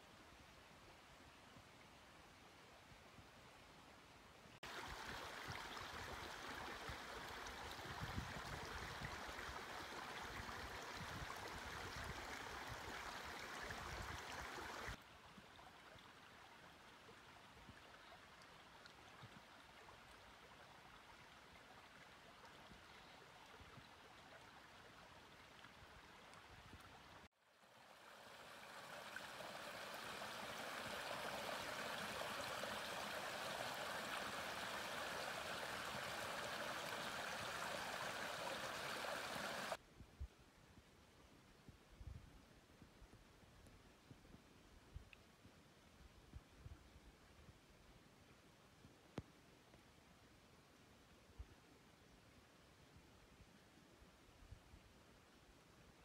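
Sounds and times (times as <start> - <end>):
creek running over stones: 4.6 - 39.8.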